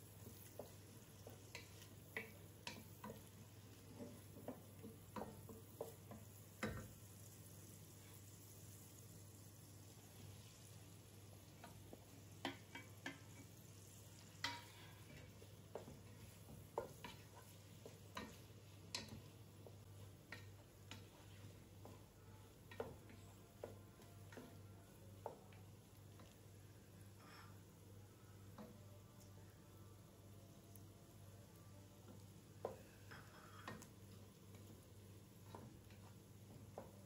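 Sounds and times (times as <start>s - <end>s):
faint frying sizzle: 0.0s - 37.0s
spoon knocking against a pan: 0.3s - 6.9s, 11.6s - 13.5s, 22.7s - 24.6s.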